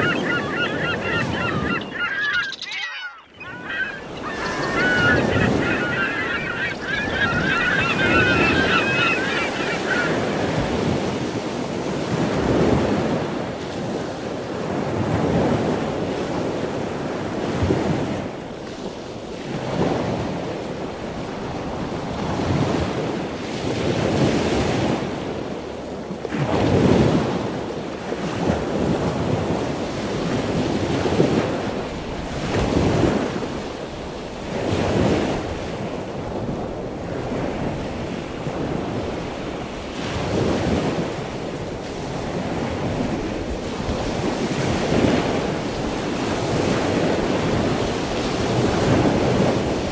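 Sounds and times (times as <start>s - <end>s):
bird calling: 0.0s - 11.0s
wind buffeting microphone: 0.0s - 13.4s.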